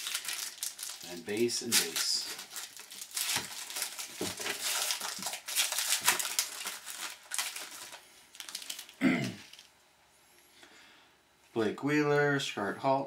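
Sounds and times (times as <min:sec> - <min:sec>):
foil wrapper crinkling: 0:00.0 - 0:09.7.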